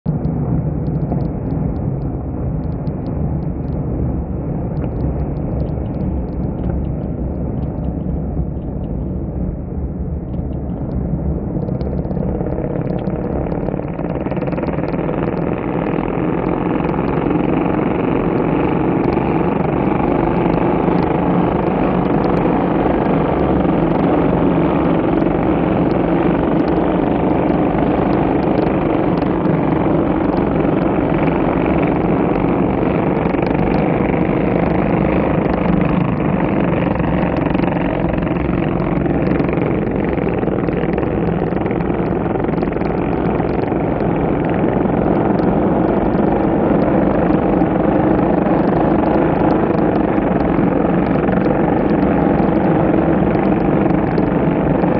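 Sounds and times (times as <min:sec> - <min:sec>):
racing motorcycles passing: 0:11.7 - 0:54.9.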